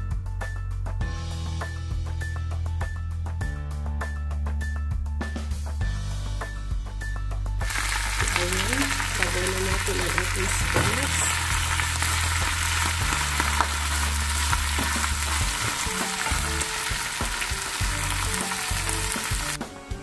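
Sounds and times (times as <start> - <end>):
spinach sizzling in frying pan: 7.6 - 19.6.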